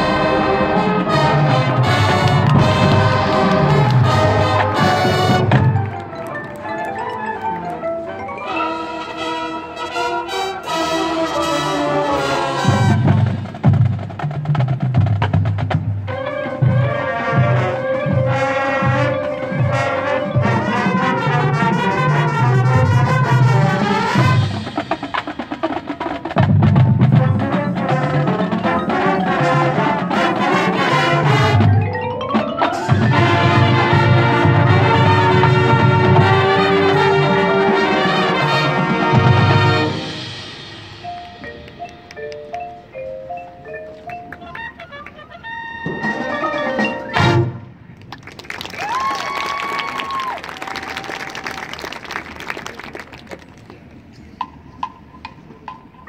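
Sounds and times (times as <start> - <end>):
marching drums: 0.0 - 6.1, 11.2 - 42.2
brass section playing: 0.0 - 7.7, 8.4 - 13.7, 16.1 - 41.8, 44.5 - 47.8
marimbas: 2.5 - 11.5, 24.2 - 37.7, 39.2 - 47.5.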